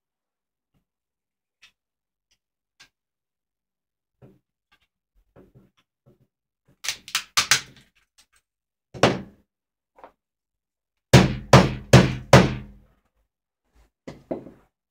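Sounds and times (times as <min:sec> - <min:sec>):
hammer knocking on wrapped phone: 0:09.0 - 0:09.3, 0:11.1 - 0:12.8.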